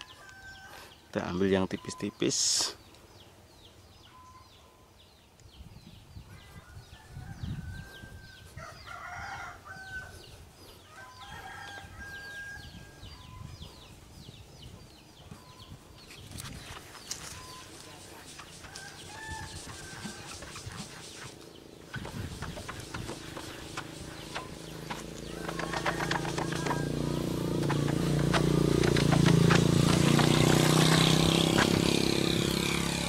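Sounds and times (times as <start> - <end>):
rooster crowing: 0.0 - 0.9, 6.6 - 10.2, 10.9 - 13.0, 18.7 - 20.5, 25.2 - 27.9
scuffing and rubbing: 16.1 - 32.0.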